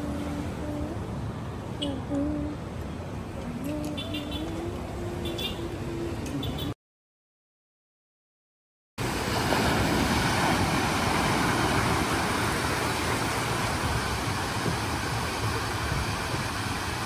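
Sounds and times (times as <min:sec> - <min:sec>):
small waves breaking on beach: 0:09.0 - 0:17.0.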